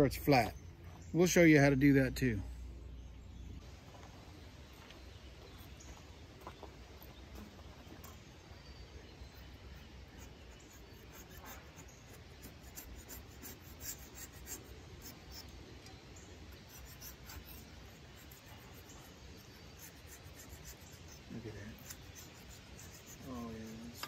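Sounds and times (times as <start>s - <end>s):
razor blade scraping metal: 9.8s - 15.5s, 16.5s - 24.0s.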